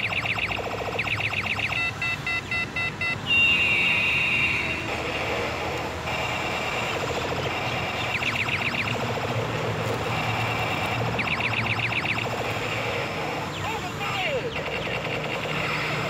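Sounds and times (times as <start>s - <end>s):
fast chirping warble: 0.0s - 1.9s, 6.3s - 9.3s, 10.1s - 16.0s
short beeps: 1.2s - 4.6s.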